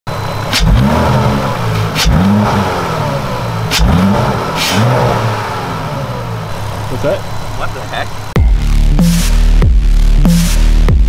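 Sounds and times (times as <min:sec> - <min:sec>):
car engine revving: 0:00.1 - 0:11.0
exhaust cracks: 0:00.4 - 0:08.7.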